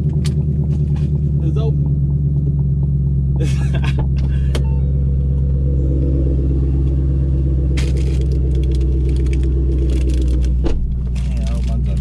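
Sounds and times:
car engine idling: 0:00.0 - 0:12.0
car door opening: 0:10.5 - 0:11.0.

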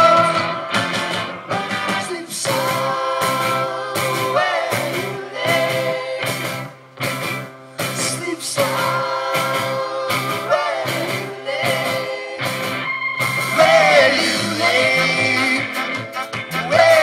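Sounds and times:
person singing: 0:00.0 - 0:00.8, 0:01.5 - 0:06.6, 0:08.0 - 0:12.8, 0:13.5 - 0:17.0
crowd singing along: 0:00.0 - 0:06.9, 0:08.0 - 0:17.0
live rock band playing: 0:00.0 - 0:17.0
brass section: 0:12.6 - 0:17.0.

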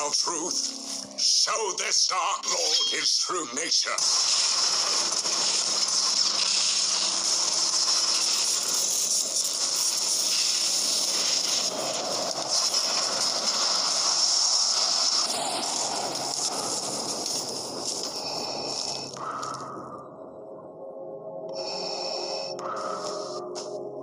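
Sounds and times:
magic spell rushing hiss: 0:03.7 - 0:19.1.

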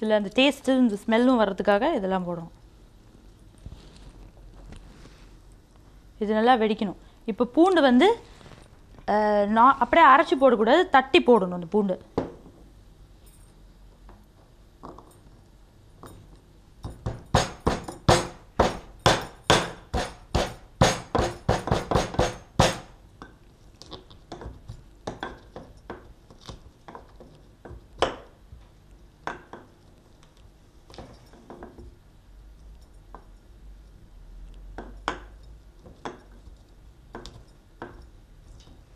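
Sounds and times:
garlic being pounded: 0:16.9 - 0:23.0.

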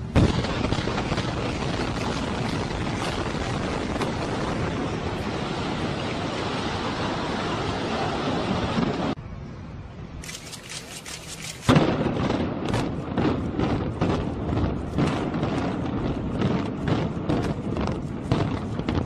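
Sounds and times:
loud blast: 0:00.0 - 0:06.8
sharp explosive cracks: 0:00.0 - 0:06.8, 0:10.5 - 0:19.0
low rumble of collapsing buildings: 0:00.0 - 0:19.0
cracking bangs: 0:00.1 - 0:05.7, 0:10.5 - 0:19.0.

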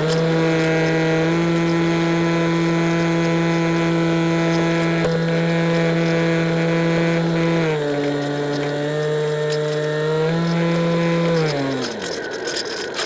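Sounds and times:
model plane motor whine: 0:00.0 - 0:13.0.

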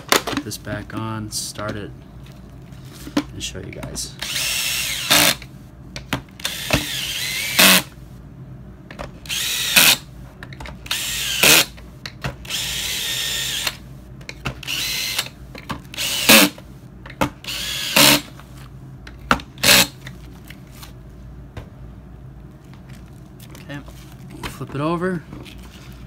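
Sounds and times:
cordless drill motor whining: 0:04.2 - 0:05.5, 0:06.4 - 0:07.9, 0:09.2 - 0:10.0, 0:10.8 - 0:11.8, 0:12.4 - 0:13.8, 0:14.6 - 0:16.6, 0:17.4 - 0:18.3.

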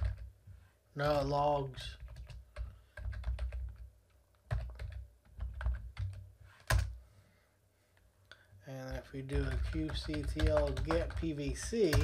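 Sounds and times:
typing on computer keyboard: 0:00.0 - 0:00.3, 0:02.0 - 0:07.0, 0:08.9 - 0:12.0.

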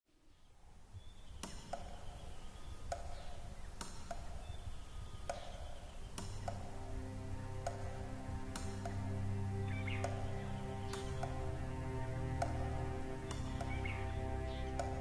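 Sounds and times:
sharp clicks: 0:05.2 - 0:06.8.

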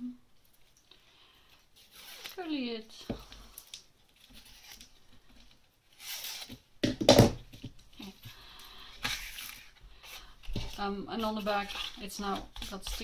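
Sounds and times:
ribbon and paper tag rustling: 0:09.0 - 0:13.0.

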